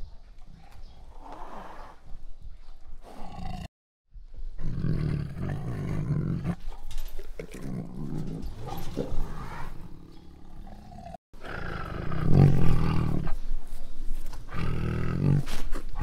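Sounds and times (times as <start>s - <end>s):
tiger growling and roaring: 3.0s - 3.7s, 4.6s - 13.5s, 14.4s - 16.0s.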